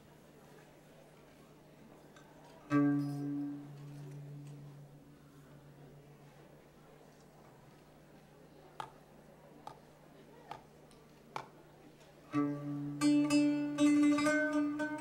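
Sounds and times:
band of plucked string instruments: 0:02.5 - 0:06.2, 0:12.2 - 0:15.0.

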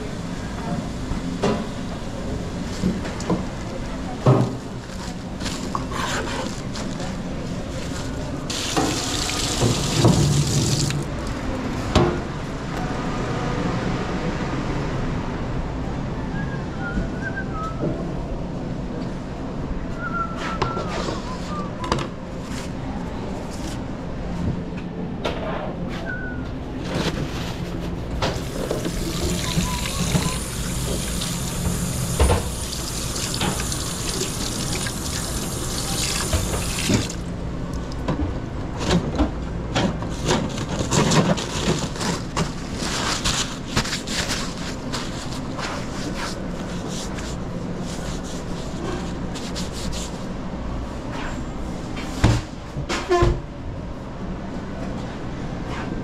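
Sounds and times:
water running from tap: 0:08.5 - 0:11.1, 0:28.8 - 0:37.2.

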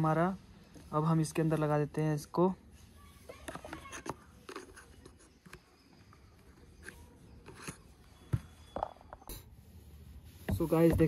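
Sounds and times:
plastic clicks and scrapes: 0:03.4 - 0:07.9.

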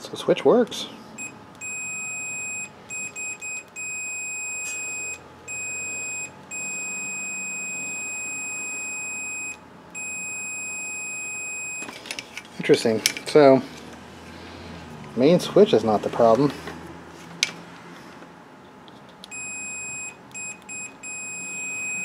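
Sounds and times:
multimeter continuity beeps: 0:01.2 - 0:12.0, 0:19.3 - 0:22.0.

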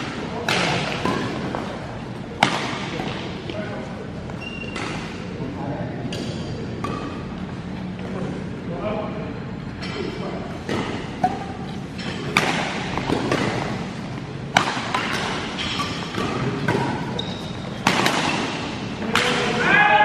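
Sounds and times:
rackets hitting shuttlecock: 0:00.0 - 0:03.6, 0:04.4 - 0:05.2, 0:06.0 - 0:07.4, 0:09.8 - 0:19.6
shoes squeaking on court floor: 0:04.2 - 0:05.3, 0:15.6 - 0:18.7.

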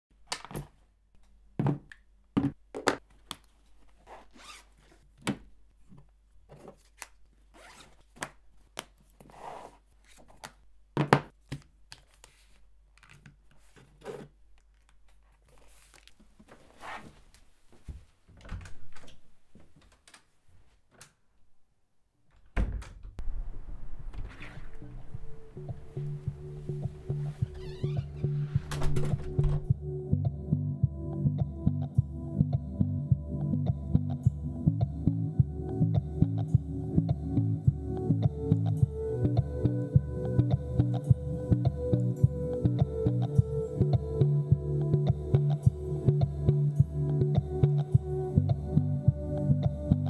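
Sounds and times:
zip rasping: 0:04.0 - 0:04.7, 0:07.6 - 0:08.0
steady low noise: 0:23.2 - 0:27.6.

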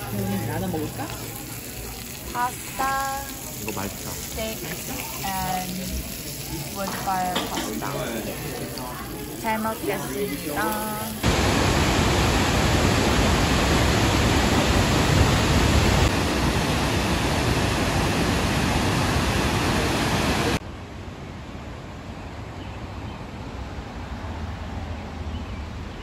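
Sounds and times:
waterfall roaring: 0:00.0 - 0:20.6.

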